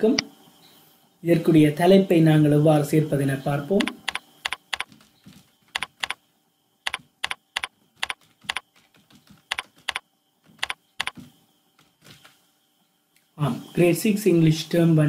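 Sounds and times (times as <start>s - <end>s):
typing on computer keyboard: 3.8s - 5.0s, 5.7s - 6.2s, 6.9s - 10.0s, 10.6s - 11.2s.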